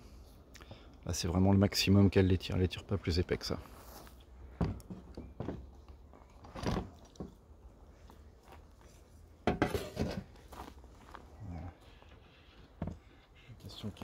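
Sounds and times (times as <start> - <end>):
hive parts knocking and clattering: 4.6 - 5.8.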